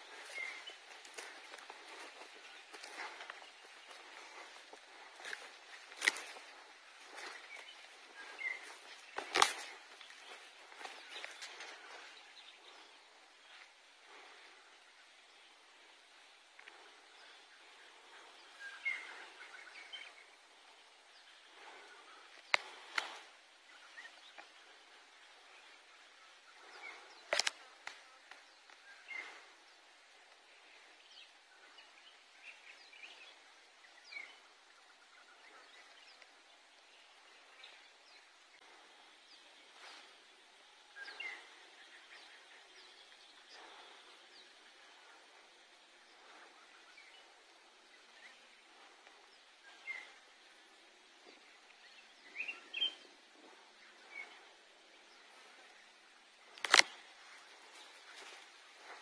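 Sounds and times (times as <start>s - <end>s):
steady field hiss: 0.0s - 59.0s
sharp clicks: 27.3s - 28.4s, 56.5s - 57.0s
bird chirps: 51.2s - 55.8s.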